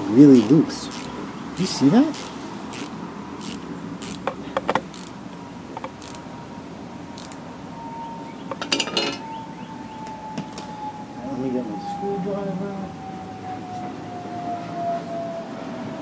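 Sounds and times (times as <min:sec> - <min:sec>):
screwdriver metallic clicks: 0:02.2 - 0:05.1, 0:05.8 - 0:06.2.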